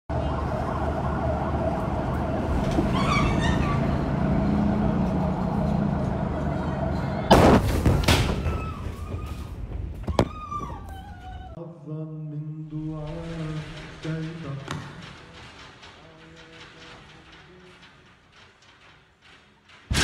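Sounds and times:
low hum: 0:00.1 - 0:10.0
crash and rattling debris: 0:01.7 - 0:10.0, 0:12.7 - 0:20.0
loud explosion blast: 0:07.3 - 0:08.8.

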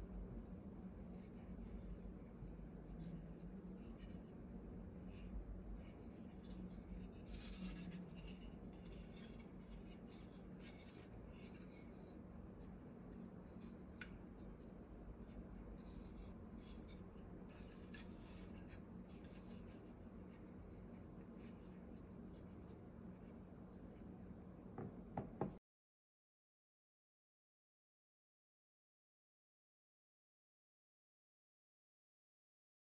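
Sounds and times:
steady low hum: 0:00.0 - 0:25.6
hands rubbing wood: 0:01.2 - 0:23.3.

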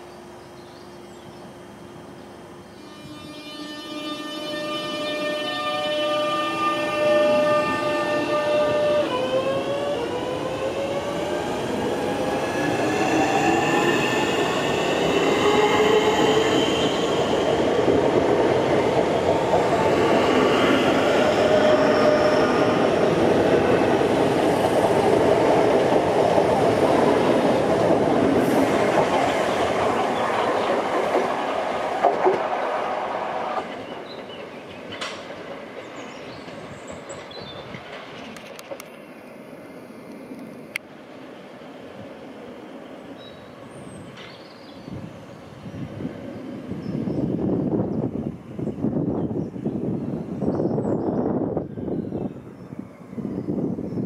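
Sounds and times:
train traction motor whine: 0:01.7 - 0:24.5.

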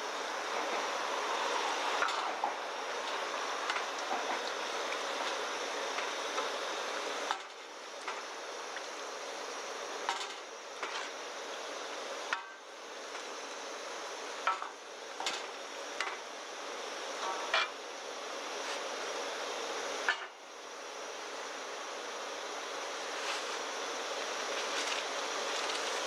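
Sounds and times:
pan hissing on gas stove: 0:00.0 - 0:26.0.

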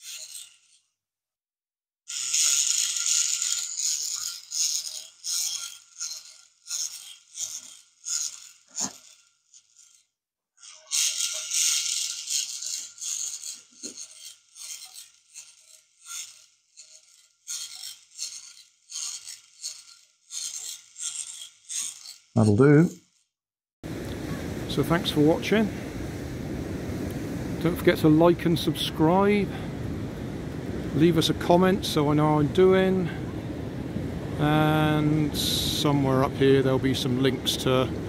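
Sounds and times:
small motor whine: 0:00.0 - 0:00.9, 0:02.1 - 0:22.4.

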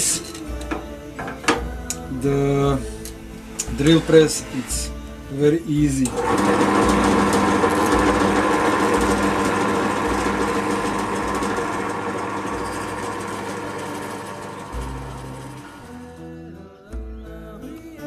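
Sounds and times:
drill press motor humming: 0:06.0 - 0:16.0
drill bit drilling into plywood: 0:06.1 - 0:16.0.

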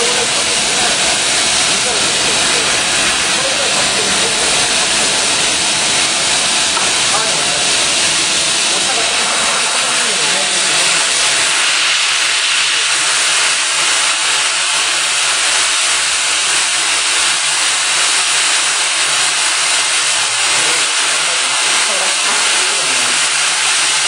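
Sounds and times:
low machine hum: 0:00.0 - 0:24.0
welding machine loud steady hiss: 0:00.0 - 0:24.0.

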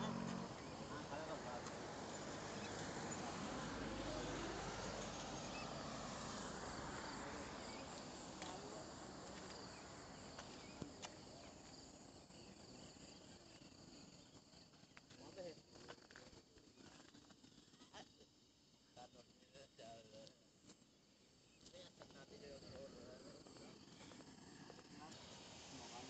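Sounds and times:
broad rushing noise: 0:00.0 - 0:10.2, 0:23.6 - 0:26.0
insects chirring: 0:00.0 - 0:26.0.

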